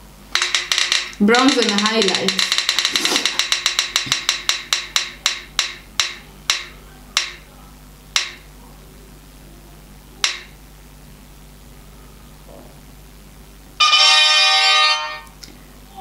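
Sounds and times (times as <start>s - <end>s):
spinning wheel ticking clicks: 0.3s - 7.5s, 8.2s - 8.4s.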